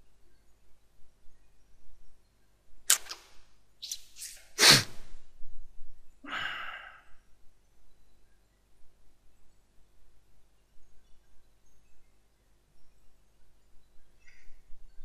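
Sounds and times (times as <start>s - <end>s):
person's sharp breathy bursts: 4.6s - 5.1s.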